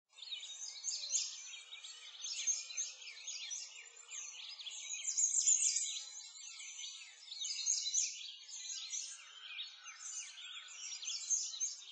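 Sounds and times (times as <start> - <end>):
songbirds chirping and singing: 0.1 - 11.9.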